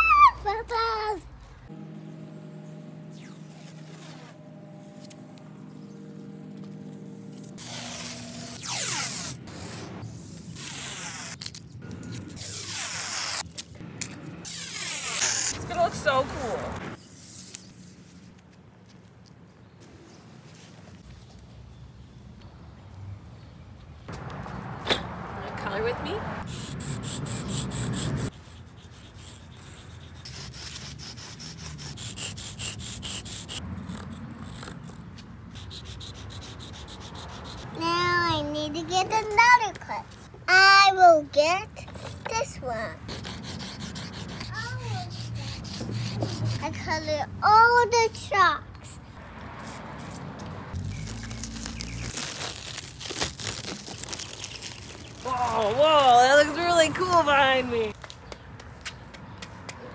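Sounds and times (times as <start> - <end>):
tape ripping off roll: 3.1 - 5.2, 6.5 - 15.6, 50.8 - 55.7
chalk scraping on concrete: 6.6 - 13.8, 14.4 - 18.4, 26.4 - 37.8, 43.1 - 47.1.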